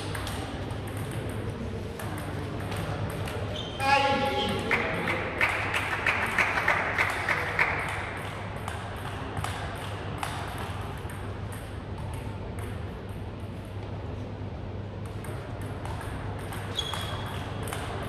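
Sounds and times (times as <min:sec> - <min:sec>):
table tennis ball clicking: 0:00.0 - 0:03.4.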